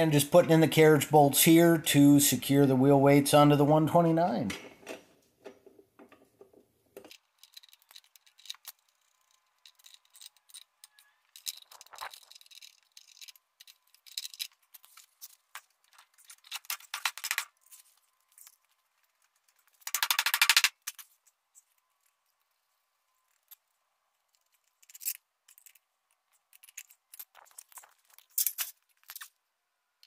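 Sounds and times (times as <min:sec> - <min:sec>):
small metal clicks and rattles: 0:07.0 - 0:22.6, 0:23.2 - 0:29.4.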